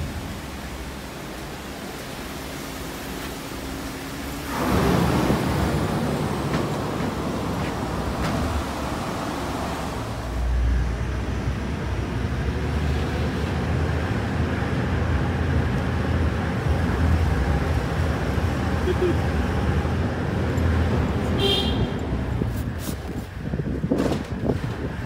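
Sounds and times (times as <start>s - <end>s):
mine cage rumbling in shaft: 4.4s - 10.1s.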